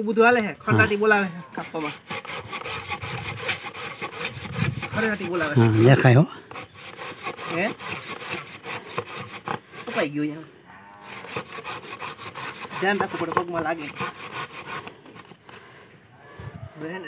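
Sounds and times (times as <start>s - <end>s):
hand saw cutting wood: 1.5s - 10.2s, 11.0s - 15.6s.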